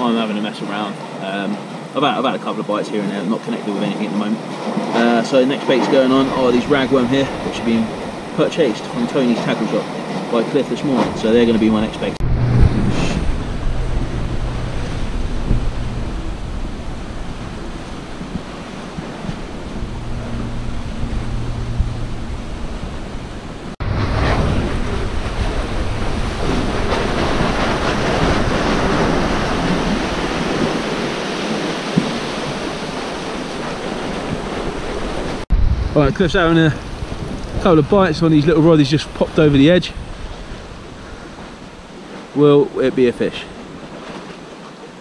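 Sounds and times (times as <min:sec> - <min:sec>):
sea washing around pier: 0:00.0 - 0:45.0
wind buffeting microphone: 0:09.9 - 0:42.3.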